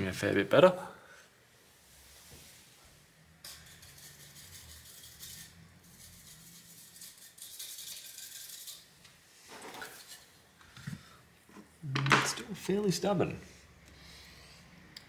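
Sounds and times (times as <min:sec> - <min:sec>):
scratchy scrubbing: 0:03.5 - 0:09.0.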